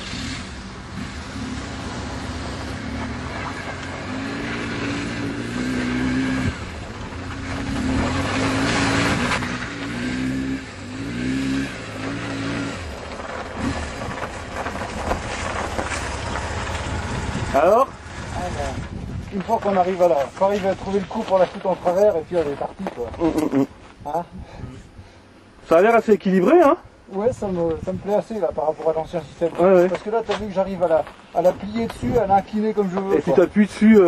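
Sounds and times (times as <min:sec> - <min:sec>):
motorcycle engine revving: 0:00.0 - 0:21.3.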